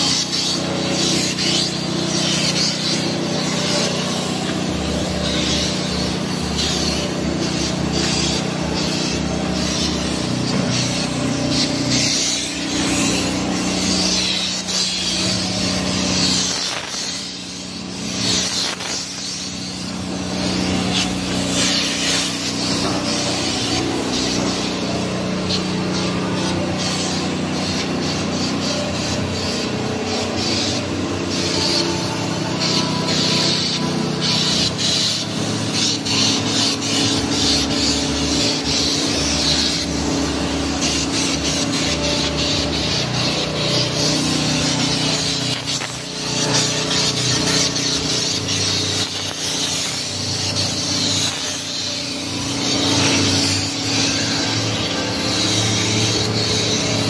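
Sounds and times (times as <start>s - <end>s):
paint spray gun hissing: 0.0s - 57.0s.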